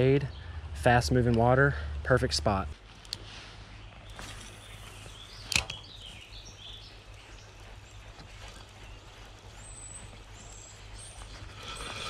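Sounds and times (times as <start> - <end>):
faint bird chirps: 3.6 - 12.0.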